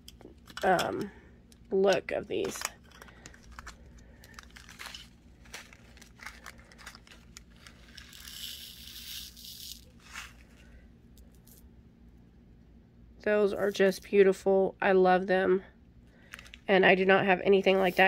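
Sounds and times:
plastic bags crinkling: 2.3 - 8.3.

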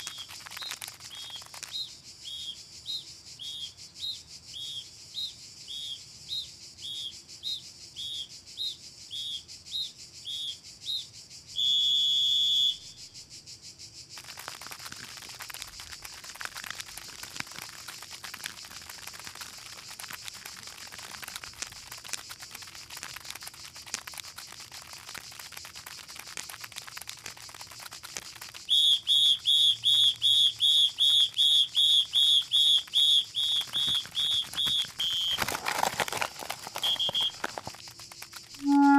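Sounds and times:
cartoon whistle-like chirps: 11.6 - 13.0, 28.7 - 35.5, 36.8 - 37.6, 38.6 - 38.9.

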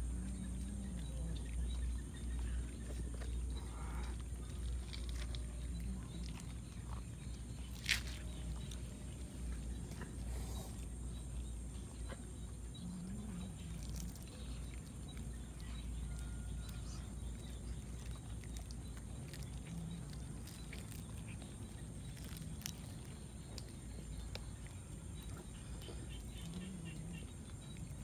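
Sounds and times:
steady low rumble: 0.0 - 28.0
cats growling low: 12.1 - 23.2.

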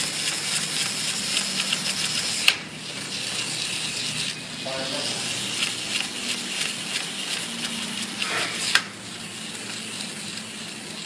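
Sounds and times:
clockwork toy motor whirring: 0.0 - 11.0.

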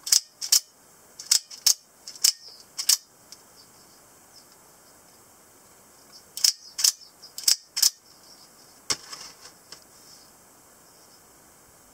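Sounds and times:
knife mechanism metallic clicks: 0.0 - 3.0.

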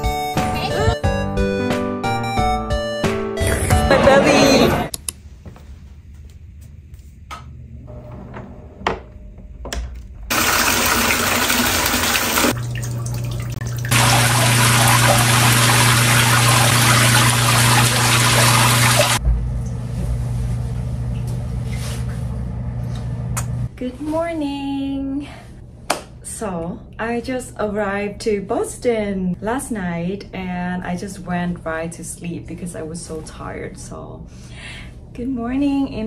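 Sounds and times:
low steady hum: 12.5 - 36.0
shower water spray: 13.8 - 19.2.

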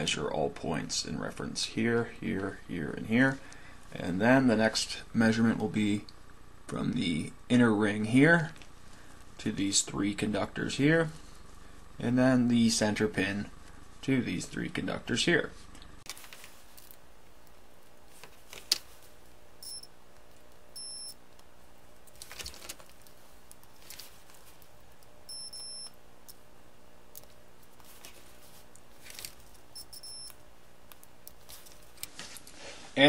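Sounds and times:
steady low hum: 0.0 - 33.0
multimeter short high beeps: 19.6 - 19.9, 20.8 - 21.2, 25.3 - 25.9, 29.8 - 30.4.

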